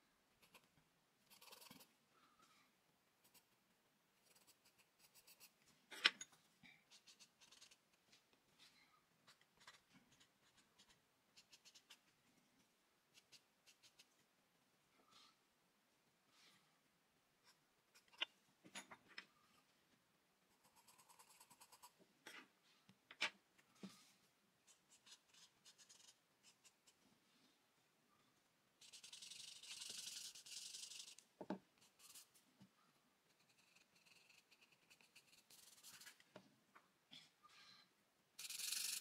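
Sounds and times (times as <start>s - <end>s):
stick rubbing charcoal on paper: 28.8s - 31.2s.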